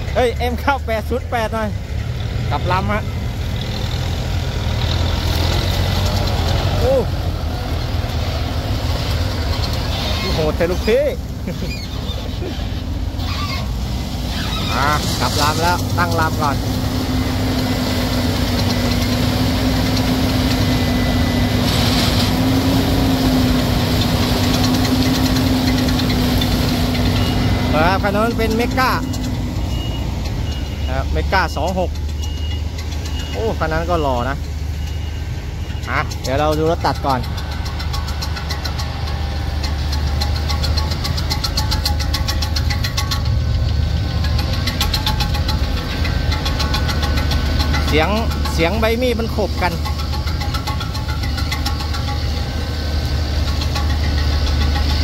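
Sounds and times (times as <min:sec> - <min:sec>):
harvester diesel drone: 0:00.0 - 0:55.0
chopper blades ticking: 0:14.8 - 0:55.0.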